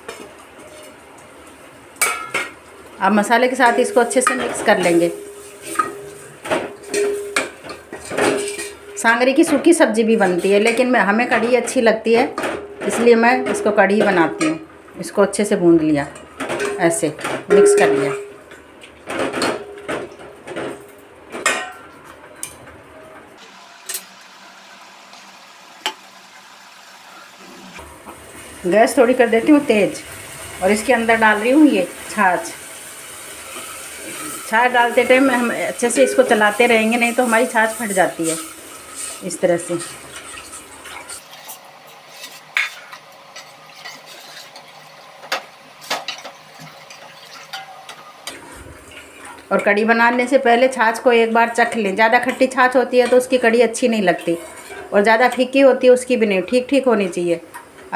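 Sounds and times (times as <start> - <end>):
ladle stirring in pot: 3.6 - 11.8, 33.4 - 50.3, 51.5 - 55.5
ladle clinking against steel pot: 6.8 - 8.9, 35.9 - 36.5.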